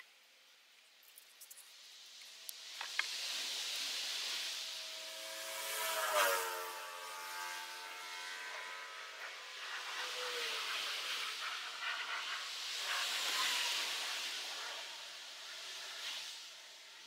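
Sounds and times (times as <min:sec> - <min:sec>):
vehicle passing by: 0:03.2 - 0:16.3.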